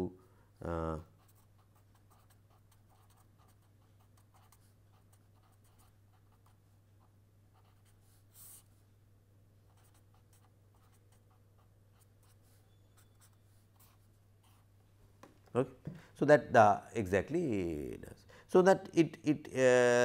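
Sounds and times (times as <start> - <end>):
felt-tip marker writing on paper: 1.1 - 8.7, 9.7 - 14.7.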